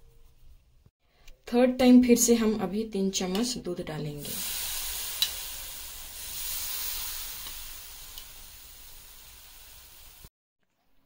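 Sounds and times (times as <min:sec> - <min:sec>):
milk sizzling in a frying pan: 0:04.2 - 0:10.3.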